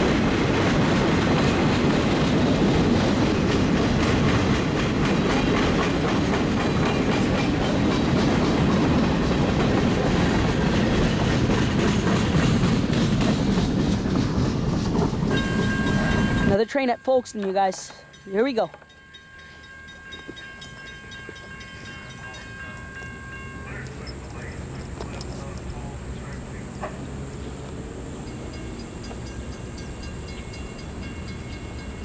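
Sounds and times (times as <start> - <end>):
wheels clickety-clack on joints: 0.0 - 19.0
steel wheels rumbling on rail: 0.0 - 32.0.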